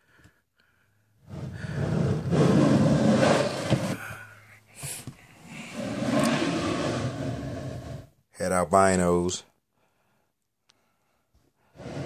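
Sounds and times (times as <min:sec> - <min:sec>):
plastic tub scraping on shelf: 0:01.2 - 0:04.1, 0:05.7 - 0:08.1.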